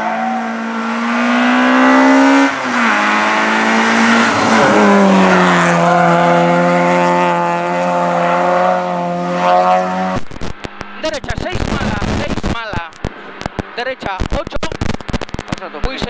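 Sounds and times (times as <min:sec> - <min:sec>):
rally car engine running hard: 0:00.0 - 0:12.4.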